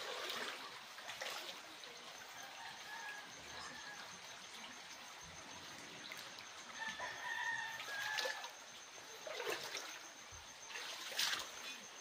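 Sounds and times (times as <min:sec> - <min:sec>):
rooster crowing: 0:06.8 - 0:08.6.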